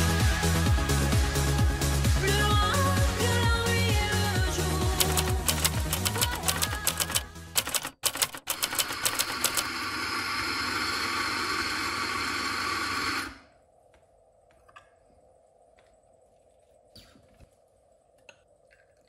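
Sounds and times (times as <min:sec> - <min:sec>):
typewriter key clicks: 0:05.0 - 0:09.7
electric coffee grinder running: 0:09.7 - 0:13.3.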